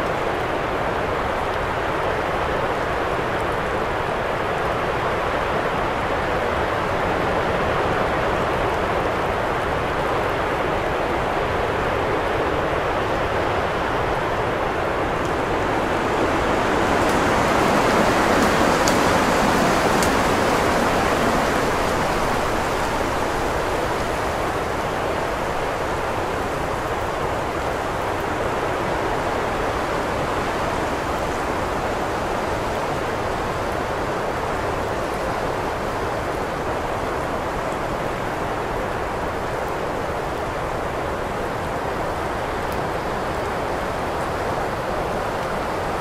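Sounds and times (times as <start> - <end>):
strong wind blowing: 5.9 - 37.6.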